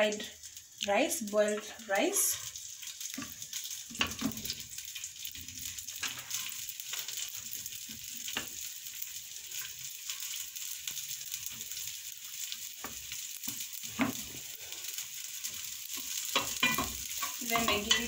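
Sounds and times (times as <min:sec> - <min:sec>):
rice sizzling in oil: 0:00.0 - 0:18.0
spatula scraping and tapping pan: 0:02.9 - 0:04.6, 0:05.7 - 0:08.6, 0:12.8 - 0:14.4, 0:15.5 - 0:18.0.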